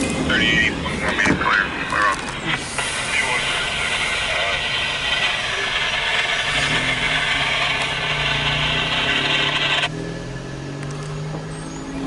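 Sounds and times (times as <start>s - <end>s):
freight train wheels rushing on rail: 0.0s - 10.0s
car engine idling: 0.3s - 9.9s.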